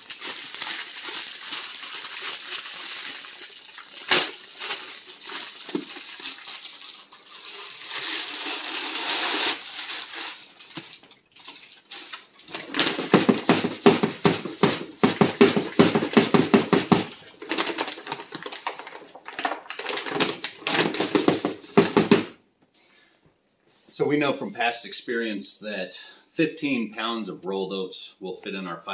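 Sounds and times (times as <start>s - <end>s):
oats pouring into bag: 0.0s - 10.6s
bag crinkling and rattling: 0.0s - 22.3s.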